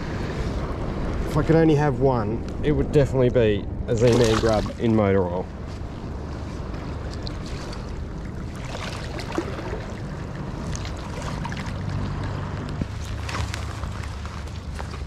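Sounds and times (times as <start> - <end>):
wind buffeting microphone: 0.0 - 15.0
water lapping at rocky shore: 3.9 - 15.0.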